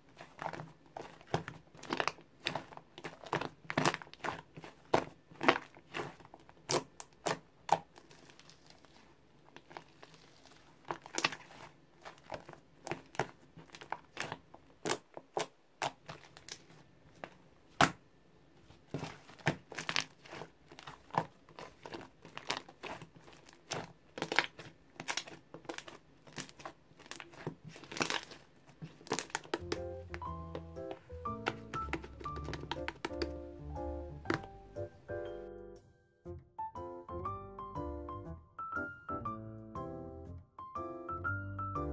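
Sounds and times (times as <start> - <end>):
slime sticky clicks and pops: 29.1 - 33.4.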